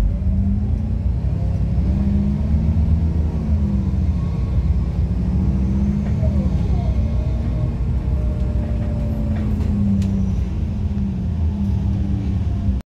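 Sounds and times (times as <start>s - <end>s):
bus engine drone: 0.0s - 12.8s
road rumble: 0.0s - 12.8s.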